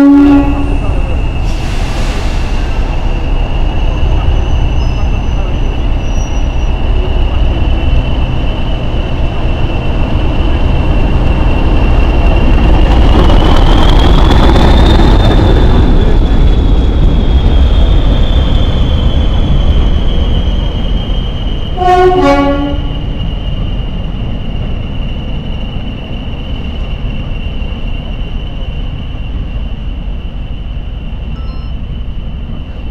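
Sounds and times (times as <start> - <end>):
train horn blast: 0.0 - 0.9, 21.8 - 23.0
diesel locomotive engine: 0.0 - 32.9.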